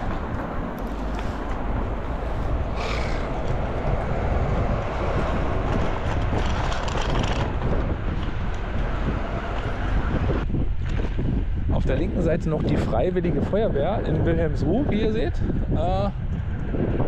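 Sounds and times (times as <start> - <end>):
road traffic passing: 0.0 - 11.7.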